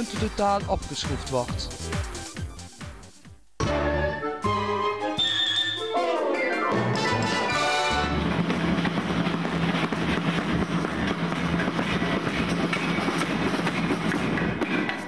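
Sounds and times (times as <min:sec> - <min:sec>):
music jingle: 0:03.6 - 0:08.4.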